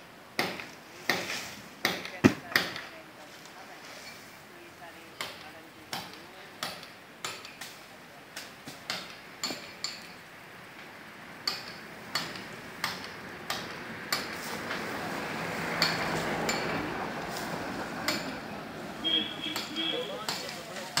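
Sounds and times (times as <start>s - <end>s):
dry palm fronds rustling: 0.4s - 21.0s.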